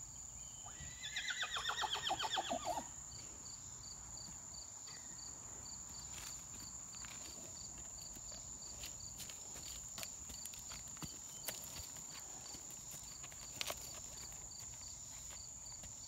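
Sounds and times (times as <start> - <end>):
horse whinnying: 0.7 - 2.9.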